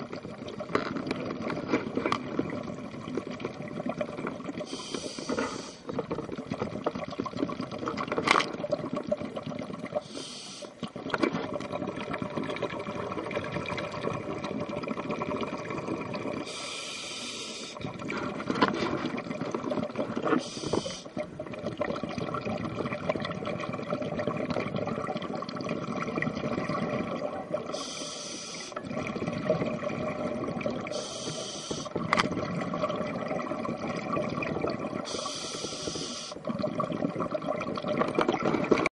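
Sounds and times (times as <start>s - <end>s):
bubbling exhalations: 0.0s - 16.8s, 17.6s - 38.9s
regulator breathing hiss: 4.7s - 5.9s, 10.0s - 10.8s, 16.4s - 17.8s, 20.4s - 21.2s, 27.7s - 28.8s, 30.9s - 32.0s, 35.1s - 36.4s.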